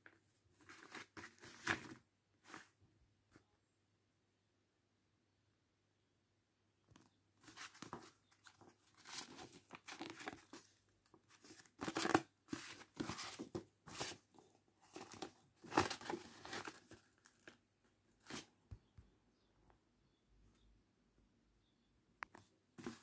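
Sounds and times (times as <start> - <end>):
paper rustling and crinkling: 0.6 - 2.7, 7.4 - 17.6, 22.8 - 23.0.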